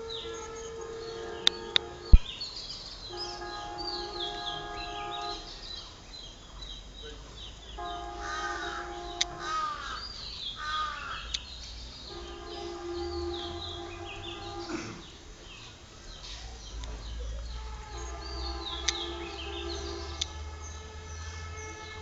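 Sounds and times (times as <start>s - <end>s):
small birds chirping: 0.0s - 22.0s
harsh cawing calls: 7.8s - 11.4s
steady layered tone: 11.7s - 22.0s.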